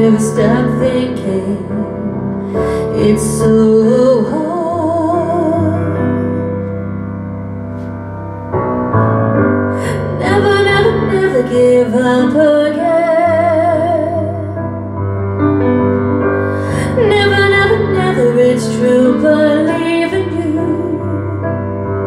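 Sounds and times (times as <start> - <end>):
woman singing with vibrato: 2.9 - 6.0, 9.9 - 14.5, 16.8 - 21.4.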